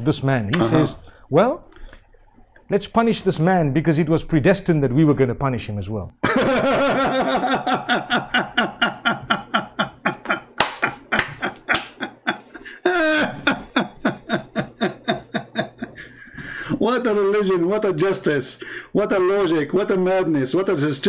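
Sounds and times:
man laughing hard: 6.2 - 16.3.

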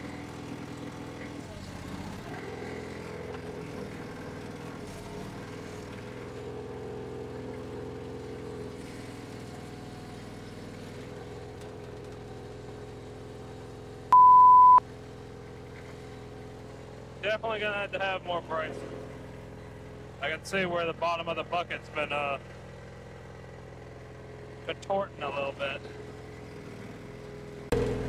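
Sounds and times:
diesel engine running: 0.0 - 28.0
loud steady beep: 14.1 - 14.8.

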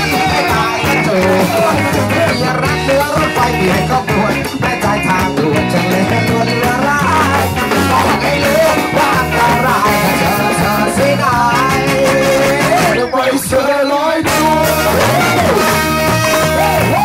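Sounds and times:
trumpet: 0.0 - 3.1, 9.7 - 13.1, 14.2 - 17.0
drum kit: 0.0 - 13.1, 14.3 - 17.0
bass guitar: 0.0 - 17.0
electric guitars: 0.0 - 17.0
person singing into microphone: 0.0 - 17.0
trombone: 7.1 - 13.0, 14.3 - 17.0.

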